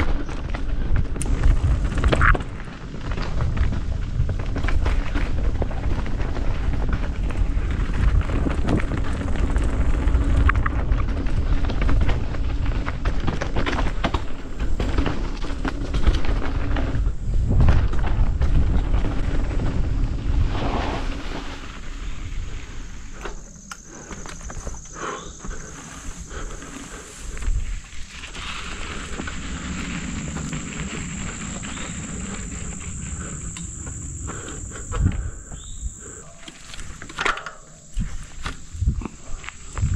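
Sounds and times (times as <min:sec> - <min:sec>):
vehicle rumbling: 0:16.8 - 0:37.0.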